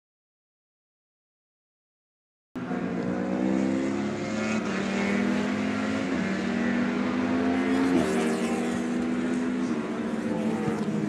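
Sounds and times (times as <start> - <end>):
racing motorcycle engines high revs: 2.6 - 11.0.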